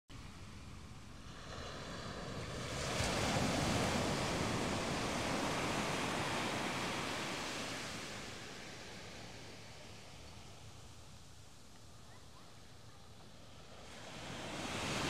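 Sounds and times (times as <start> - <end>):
ocean wave breaking on beach: 1.1 - 10.6, 13.5 - 15.0.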